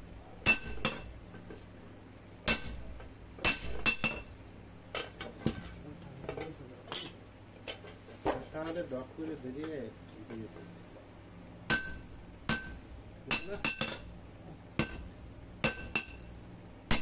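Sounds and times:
hammer striking metal on anvil: 0.4 - 1.1, 2.4 - 2.8, 3.4 - 4.3, 11.7 - 14.1, 14.8 - 16.2.

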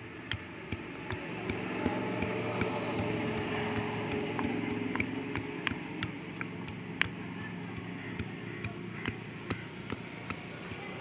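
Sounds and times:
steady motor hum: 0.0 - 11.0
stone pestle knocking in mortar: 0.2 - 11.0.

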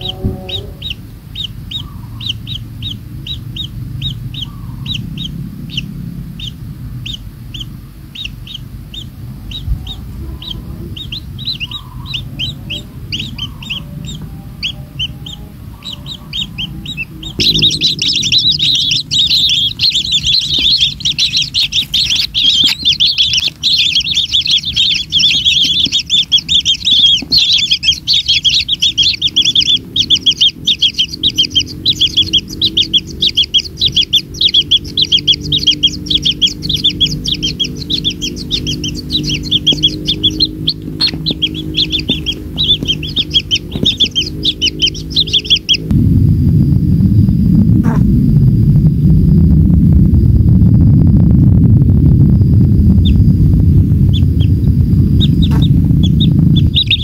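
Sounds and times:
low pitched sound: 0.0 - 7.4, 9.2 - 57.0
nestlings chirping: 0.0 - 46.0, 47.8 - 48.2, 51.7 - 57.0
low hum: 0.0 - 57.0.

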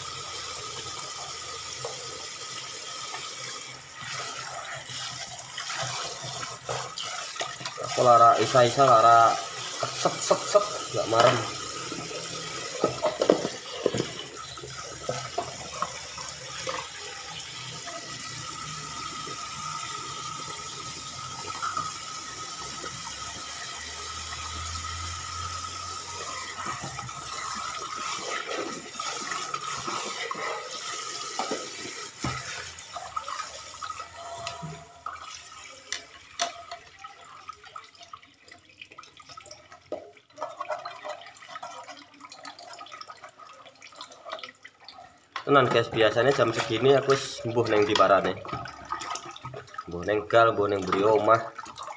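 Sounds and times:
tap running into sink: 9.6 - 36.8
dishes clinking and knocking: 9.9 - 16.0.

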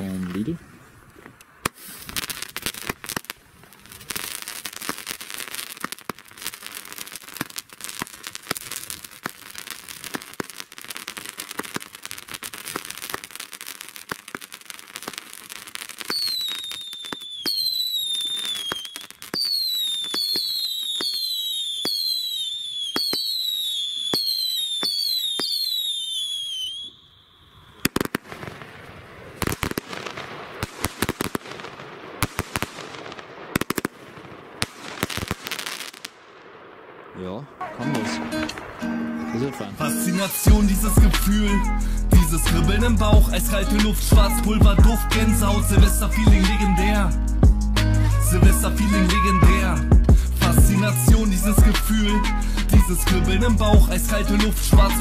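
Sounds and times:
firework crackling: 0.0 - 55.0
sharp firework cracks: 1.1 - 45.6
firework whistles sliding down: 6.5 - 28.1.

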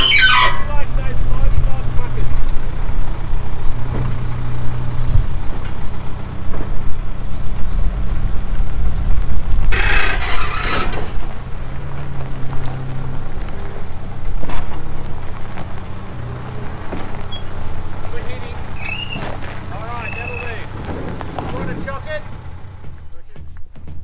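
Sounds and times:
truck chassis rolling on gravel: 0.0 - 23.6
loader engine running: 0.0 - 23.7
loud hissing burst: 7.0 - 11.9.

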